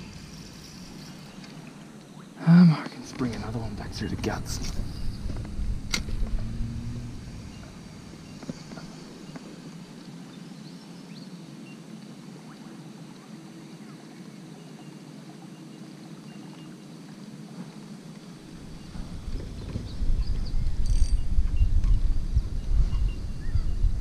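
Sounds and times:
low rumble: 0:03.2 - 0:09.5, 0:18.5 - 0:24.0.

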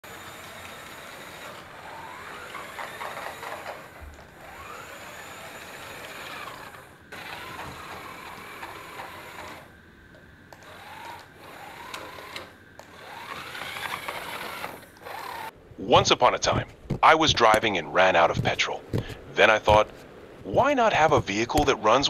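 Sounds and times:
small gear motors whining: 0:00.0 - 0:15.5.

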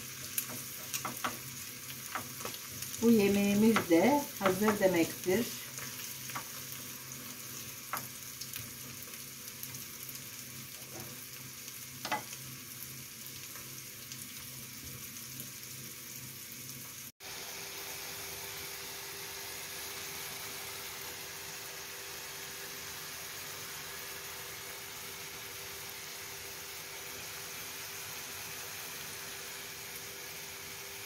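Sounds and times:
egg sizzling in a pan: 0:00.0 - 0:31.0
wooden spatula knocking pan: 0:03.6 - 0:05.0.

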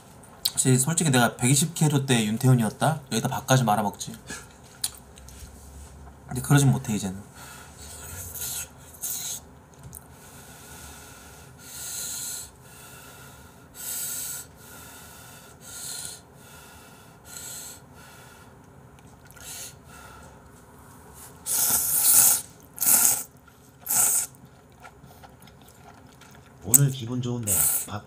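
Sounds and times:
person slurping noodles: 0:21.4 - 0:26.6, 0:27.5 - 0:27.9.

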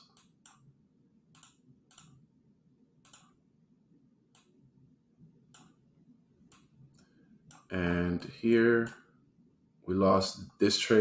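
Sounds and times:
computer mouse clicks: 0:00.0 - 0:00.7, 0:01.3 - 0:02.2, 0:03.0 - 0:03.4, 0:04.3 - 0:04.6, 0:05.5 - 0:05.8, 0:06.5 - 0:07.7.

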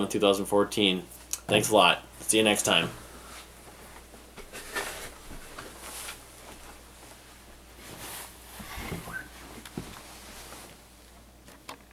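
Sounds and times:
faint rustling: 0:02.8 - 0:11.2.

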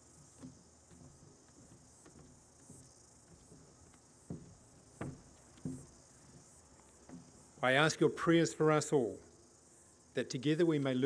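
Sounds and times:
soft thumps: 0:00.4 - 0:06.5.

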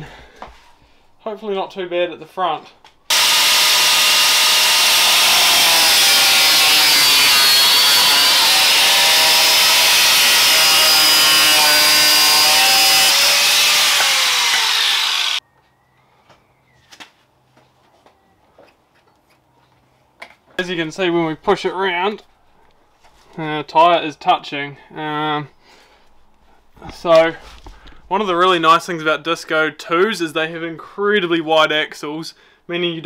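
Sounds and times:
angle grinder cutting sheet metal: 0:03.1 - 0:15.4.

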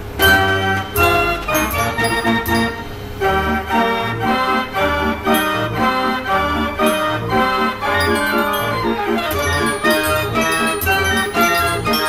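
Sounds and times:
fairground organ playing: 0:00.0 - 0:12.0.

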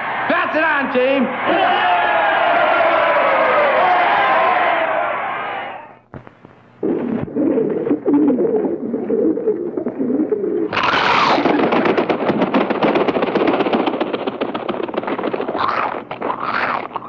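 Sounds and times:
pigeons cooing: 0:07.2 - 0:11.5, 0:15.5 - 0:17.0
wingbeats of flock taking off: 0:10.7 - 0:17.0.

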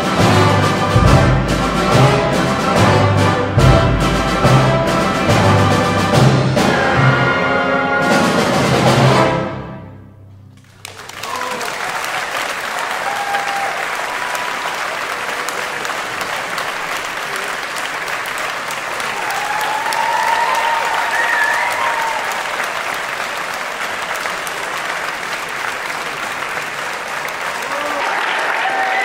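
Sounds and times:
audience applauding: 0:10.6 - 0:29.0.

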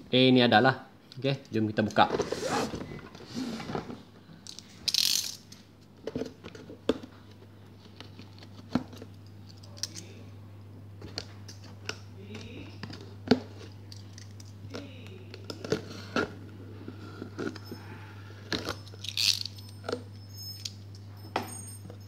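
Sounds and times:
steady low hum: 0:00.0 - 0:22.0
cardboard box scraping on tiles: 0:02.1 - 0:03.8.

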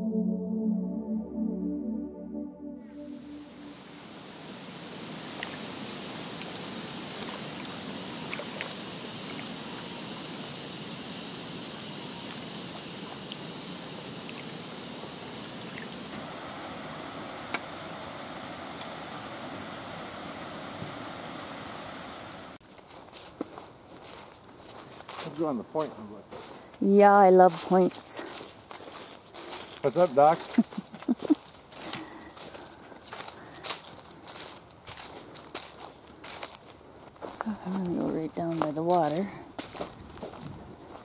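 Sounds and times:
water rushing: 0:03.1 - 0:22.6.

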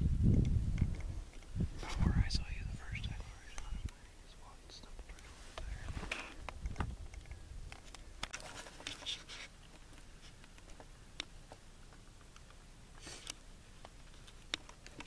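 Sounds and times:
faint rustling: 0:00.8 - 0:15.0
small clicks and scrapes: 0:04.9 - 0:15.0.

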